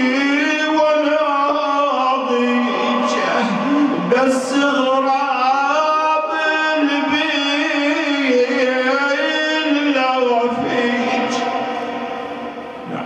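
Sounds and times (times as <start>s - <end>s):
man chanting into a microphone: 0.0s - 13.0s.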